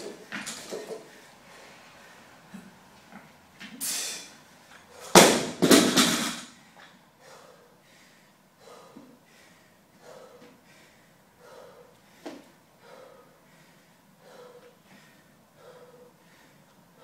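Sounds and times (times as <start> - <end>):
barbell crashing onto floor mat: 5.1 - 6.5
heavy breathing: 6.6 - 17.0.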